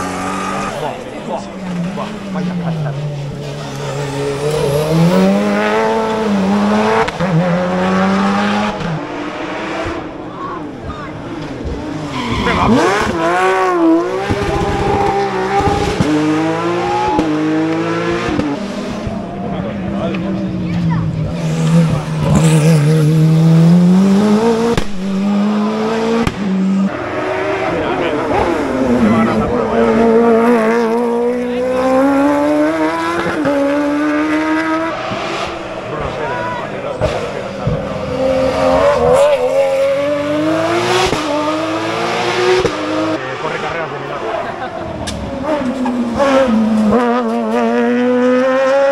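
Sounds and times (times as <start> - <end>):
rally car engine revving: 0.0 - 48.9.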